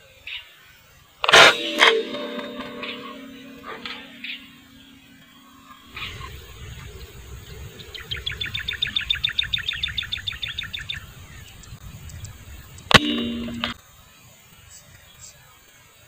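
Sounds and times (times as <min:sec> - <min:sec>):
short ringing tone: 0:01.4 - 0:05.8, 0:12.9 - 0:13.8.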